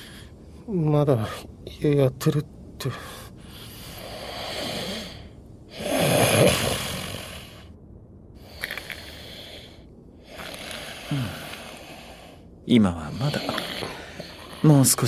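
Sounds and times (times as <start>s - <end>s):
man murmuring sleepily: 0.0s - 7.6s, 9.8s - 15.0s
man snoring: 3.9s - 7.7s, 8.6s - 12.4s, 13.1s - 15.0s.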